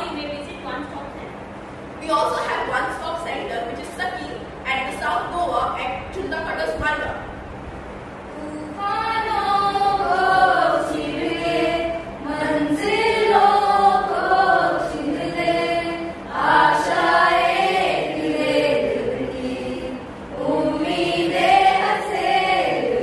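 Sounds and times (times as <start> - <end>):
group of voices singing: 8.3 - 23.0.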